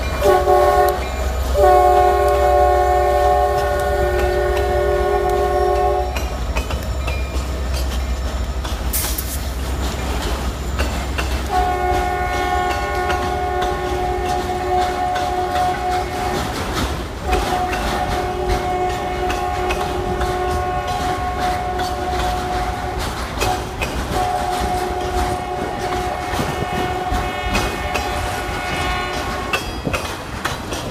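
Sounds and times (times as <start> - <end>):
train rumble and wheel clatter: 0.0 - 30.9
locomotive horn blasts: 0.1 - 6.2, 11.4 - 29.6.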